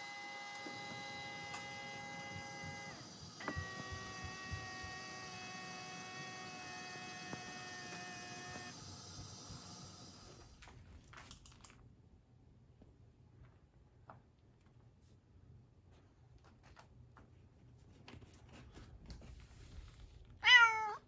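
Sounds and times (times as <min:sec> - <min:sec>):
motor whining: 0:00.0 - 0:10.7
motor starting click: 0:00.0 - 0:10.8.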